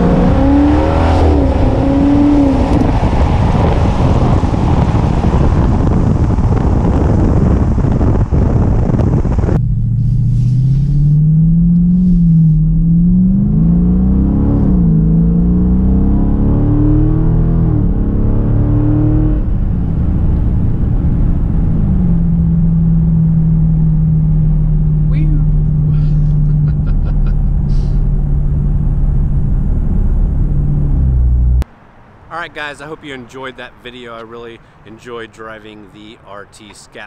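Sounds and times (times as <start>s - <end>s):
wind buffeting microphone: 0.0s - 13.2s
car engine accelerating: 0.0s - 31.7s.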